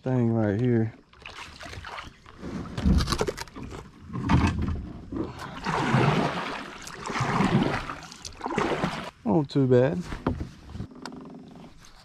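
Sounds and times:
paddle strokes splashing in water: 1.1s - 2.8s, 5.2s - 9.1s.

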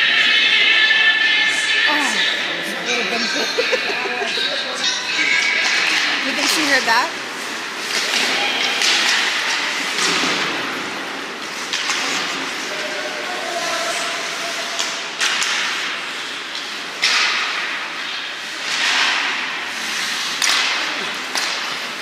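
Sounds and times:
skates scraping ice: 0.1s - 22.0s
sharp cracks of sticks and puck: 5.4s - 12.9s, 13.6s - 22.0s.

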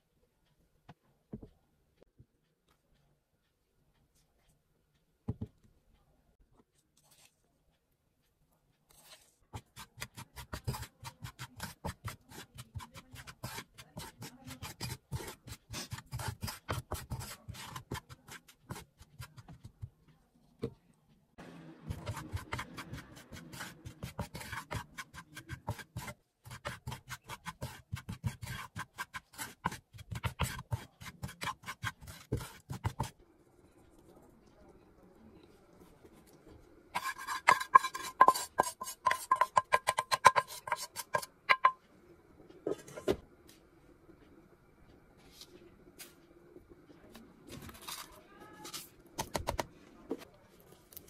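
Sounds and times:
wooden spatula scraping pan: 8.9s - 19.8s, 21.9s - 33.1s, 36.9s - 41.8s.

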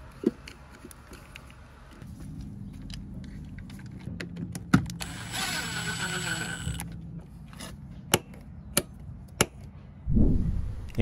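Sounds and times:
screwdriver whirring: 5.0s - 6.9s.

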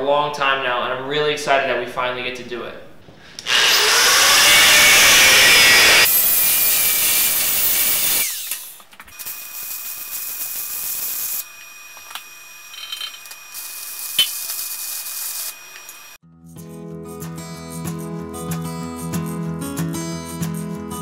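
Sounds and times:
angle grinder cutting steel: 3.4s - 16.2s
welding hiss: 9.2s - 12.0s, 13.2s - 16.2s.

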